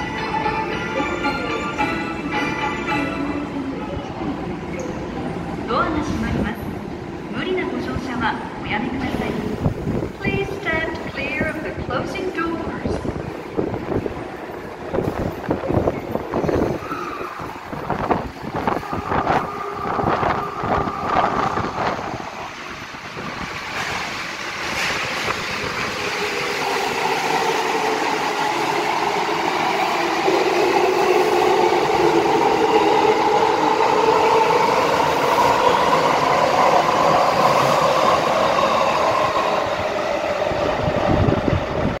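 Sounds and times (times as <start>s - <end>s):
train wheels knocking and clattering: 23.6s - 26.0s.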